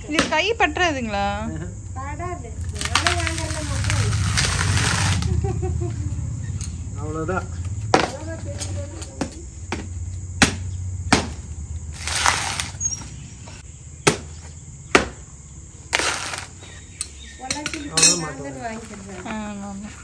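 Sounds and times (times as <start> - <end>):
husk tearing apart: 2.6 - 5.5, 11.9 - 12.8, 16.0 - 16.6
tool knocking into coconut husk: 10.4 - 11.4, 14.0 - 15.2.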